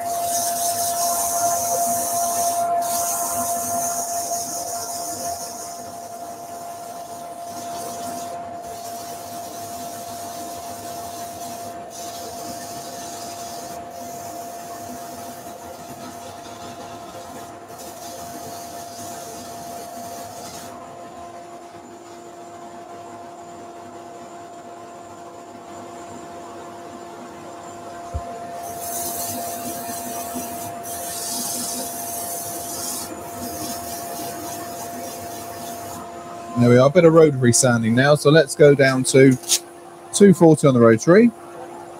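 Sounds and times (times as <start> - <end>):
sandpaper hissing against wood: 0.0 - 20.8, 28.6 - 36.0, 39.3 - 39.6
lathe whine: 0.0 - 41.9.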